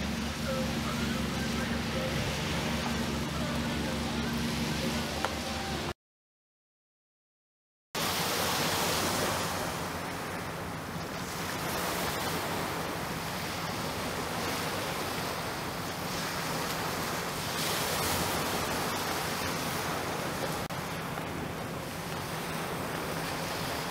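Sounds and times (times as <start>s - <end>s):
waves on shingle beach: 0.0s - 5.9s, 8.0s - 23.9s.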